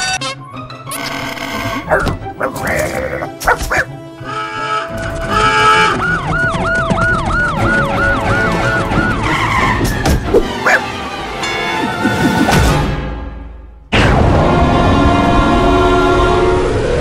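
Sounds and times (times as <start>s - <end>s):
music: 0.0s - 17.0s
alarm siren wailing: 5.0s - 9.8s.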